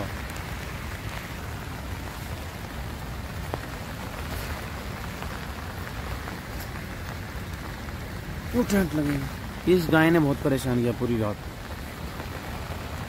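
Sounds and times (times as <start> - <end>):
steady rain: 0.0 - 13.0.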